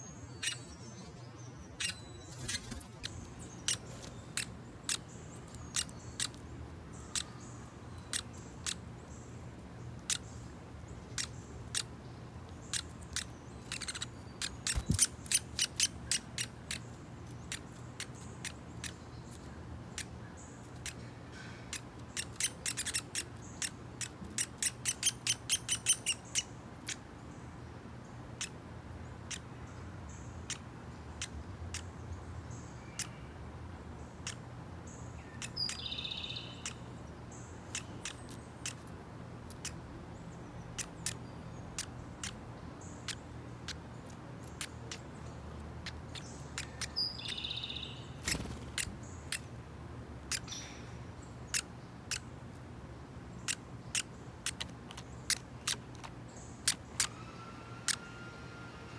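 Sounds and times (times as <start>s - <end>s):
woodpecker chip notes: 12.5s - 20.1s.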